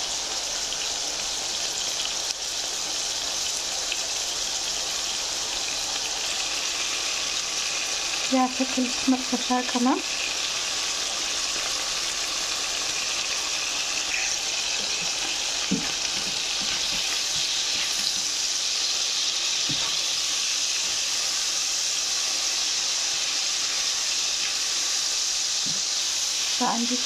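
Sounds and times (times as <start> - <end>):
meat sizzling in hot oil: 0.0 - 27.0
spatula knocking in pan: 14.8 - 18.3.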